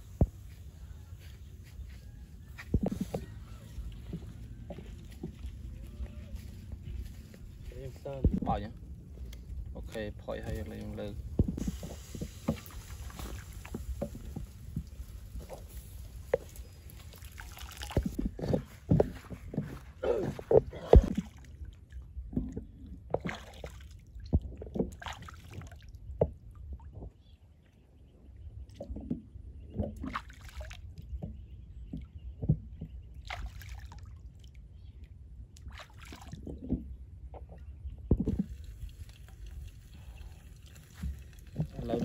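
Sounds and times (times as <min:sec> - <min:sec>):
water sloshing and splashing: 0:00.0 - 0:27.5, 0:28.6 - 0:42.0.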